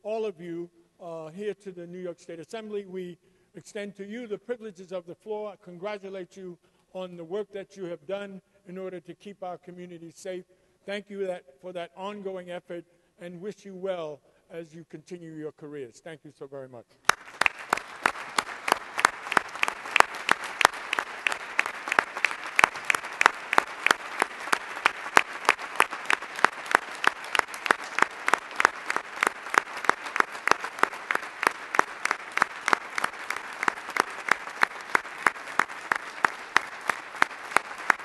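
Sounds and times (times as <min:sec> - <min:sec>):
crowd applause: 0:17.1 - 0:38.0
nearby hands clapping steadily: 0:17.1 - 0:38.0.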